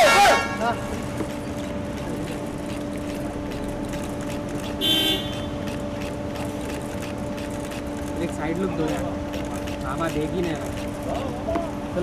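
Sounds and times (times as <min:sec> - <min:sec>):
car horn toot: 0:00.0 - 0:00.9, 0:04.8 - 0:05.6
car engine idling: 0:00.0 - 0:12.0.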